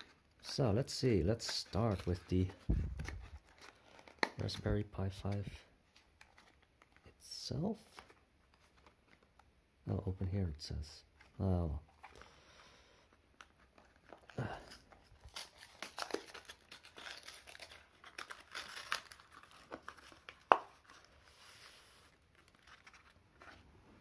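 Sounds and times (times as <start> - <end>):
cardboard and paper rustling: 0.9 - 7.1, 13.4 - 24.0.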